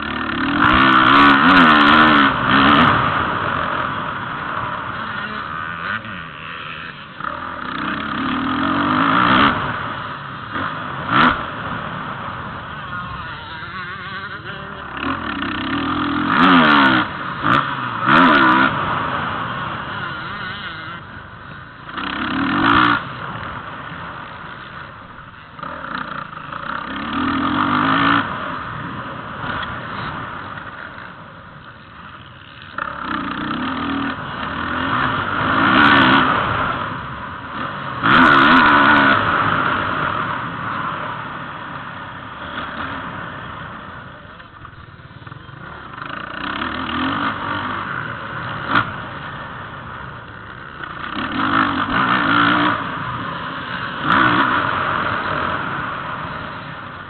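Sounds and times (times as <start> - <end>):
motocross bike engine revving: 0.0 - 57.0.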